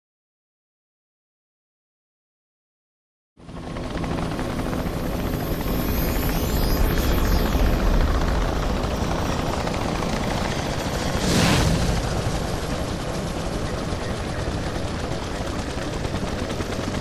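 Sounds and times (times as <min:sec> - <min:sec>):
drone rotor whirring: 0:04.5 - 0:16.1
whoosh: 0:11.0 - 0:12.9.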